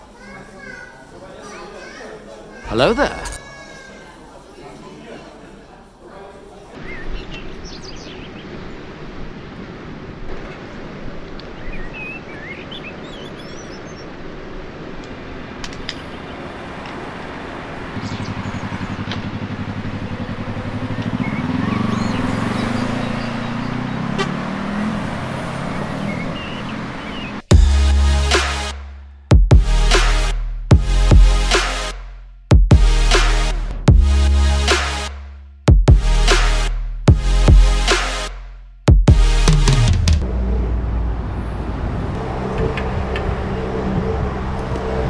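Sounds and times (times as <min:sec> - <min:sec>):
motorcycle engine accelerating: 0:17.8 - 0:27.8
loud music: 0:27.5 - 0:40.2.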